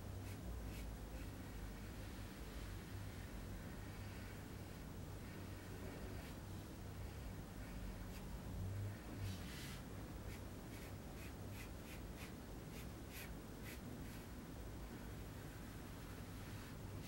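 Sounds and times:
pencil scratching on paper: 10.3s - 14.3s.

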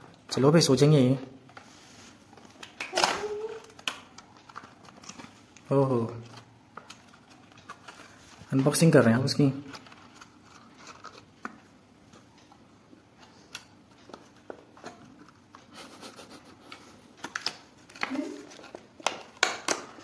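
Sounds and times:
plastic box clicks and crinkles: 2.4s - 8.9s, 9.6s - 12.6s, 16.7s - 20.0s.

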